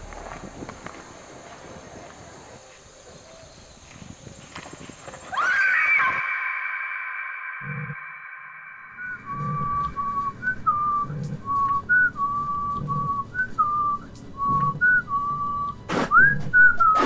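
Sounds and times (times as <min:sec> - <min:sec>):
loud rush of noise: 0:05.8 - 0:10.2
person whistling a tune: 0:08.9 - 0:17.0.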